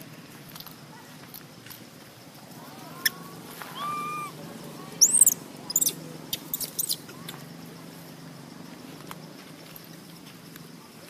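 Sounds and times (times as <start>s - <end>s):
baby monkey crying: 2.8s - 4.4s, 5.0s - 7.0s
high-pitched monkey squeaks: 3.0s - 4.3s, 5.0s - 7.1s.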